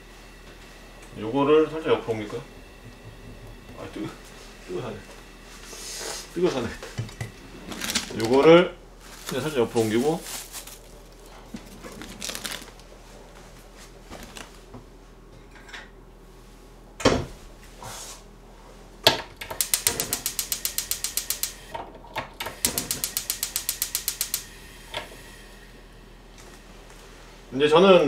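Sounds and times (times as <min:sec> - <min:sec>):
spark igniter clicking rapidly: 0:19.4 - 0:21.7, 0:22.4 - 0:24.5.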